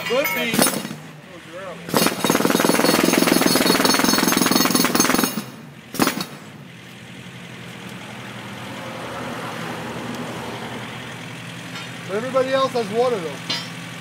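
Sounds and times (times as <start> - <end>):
jackhammer hammering pavement: 0.0 - 1.1, 1.8 - 6.5
sharp metal clank: 0.0 - 1.1, 13.4 - 13.8.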